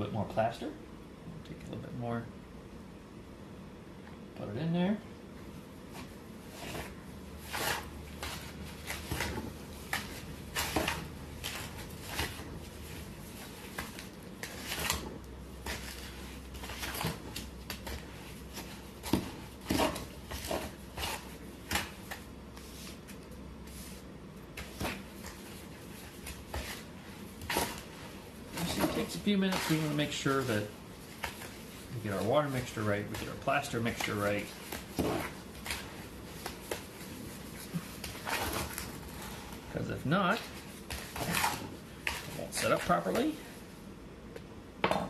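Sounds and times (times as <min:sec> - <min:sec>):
tool scraping and knocking bucket: 0:28.5 - 0:36.0.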